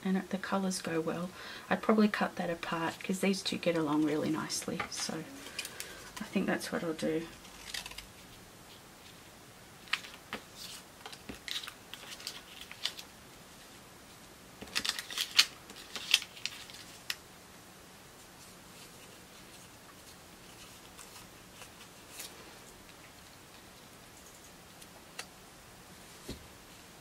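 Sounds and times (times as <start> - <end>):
paper rustling and crinkling: 2.7 - 6.4, 7.2 - 9.2, 9.8 - 13.8, 14.6 - 17.2, 18.2 - 23.0.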